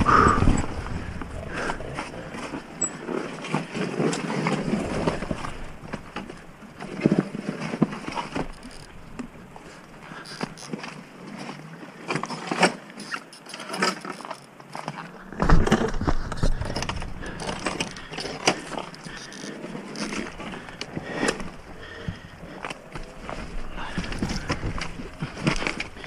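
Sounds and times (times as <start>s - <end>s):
dirt bike clattering over rocks: 15.2s - 26.0s.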